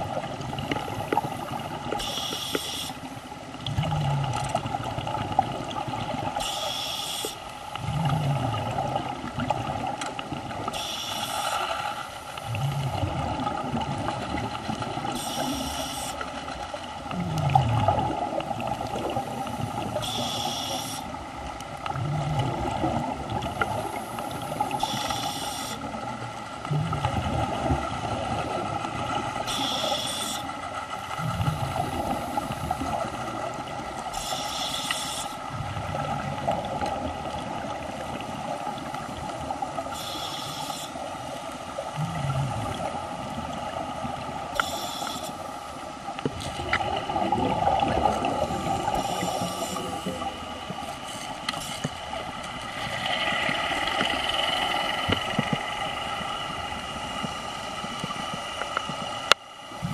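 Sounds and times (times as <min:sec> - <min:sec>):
regulator hissing inhale: 0:01.4 - 0:03.1, 0:06.4 - 0:07.5, 0:10.7 - 0:12.5, 0:15.2 - 0:16.3, 0:20.0 - 0:21.2, 0:23.7 - 0:25.9, 0:29.5 - 0:30.5, 0:34.1 - 0:35.5, 0:39.9 - 0:41.1, 0:44.6 - 0:45.6, 0:48.4 - 0:50.3
exhaled bubbles burbling: 0:03.5 - 0:06.4, 0:07.8 - 0:10.7, 0:12.4 - 0:15.7, 0:16.8 - 0:20.3, 0:21.2 - 0:25.1, 0:25.8 - 0:29.8, 0:31.0 - 0:34.2, 0:35.4 - 0:39.9, 0:41.7 - 0:44.8, 0:46.2 - 0:51.0.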